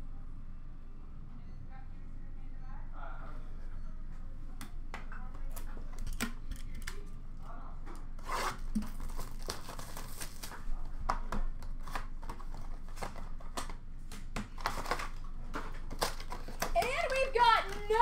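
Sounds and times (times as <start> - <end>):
cardboard packaging crinkling: 8.3 - 10.8, 14.5 - 18.0.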